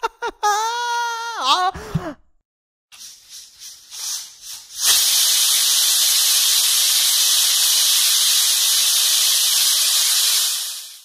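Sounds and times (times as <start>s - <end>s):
pressure cooker steam hissing: 3.0s - 11.0s.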